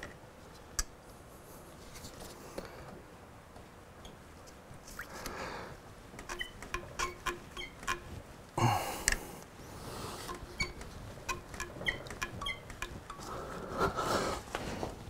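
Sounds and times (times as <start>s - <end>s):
rubber hose squeaking and clicking: 4.0s - 5.4s, 6.1s - 8.2s, 10.2s - 15.0s.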